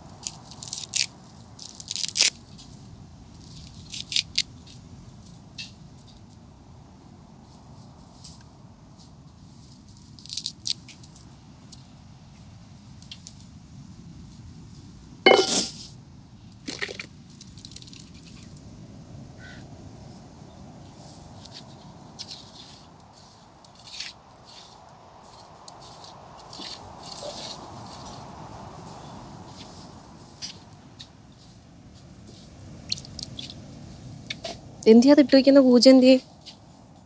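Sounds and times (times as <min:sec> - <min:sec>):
paste scraped off clay plate: 0:15.3 - 0:15.8.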